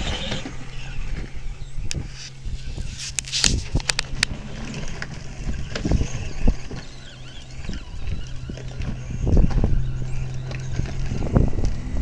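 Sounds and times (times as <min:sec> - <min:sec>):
electric motor humming: 0:00.0 - 0:03.0.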